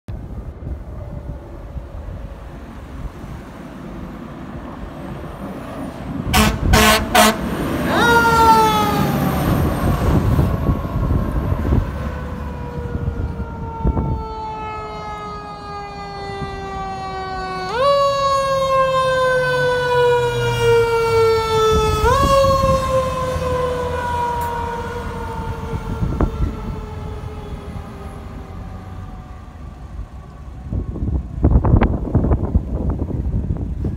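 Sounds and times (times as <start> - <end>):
air horn blasts: 6.3 - 9.1.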